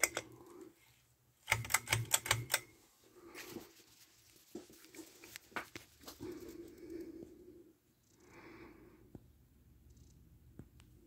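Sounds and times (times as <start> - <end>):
sharp clicks: 0.0 - 0.3, 1.4 - 2.7.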